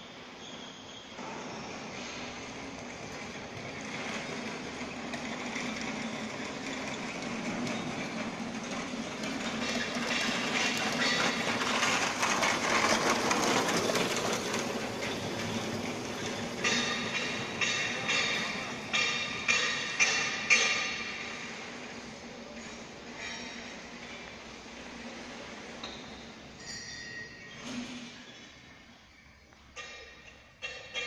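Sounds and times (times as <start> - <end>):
factory machinery humming: 0.0 - 31.0
clattering rattle: 3.0 - 21.4.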